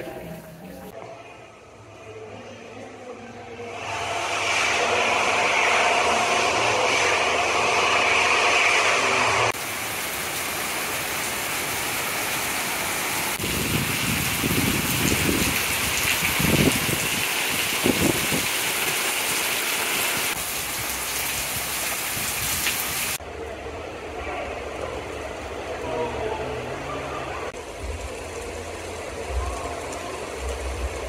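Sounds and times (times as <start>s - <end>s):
heavy rain falling and splashing: 9.6s - 23.2s, 27.5s - 31.0s.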